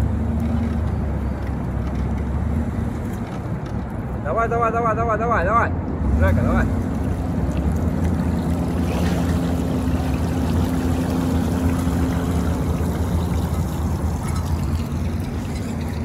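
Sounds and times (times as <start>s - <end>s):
engine humming: 5.8s - 16.0s
water pouring and splashing: 6.7s - 16.0s.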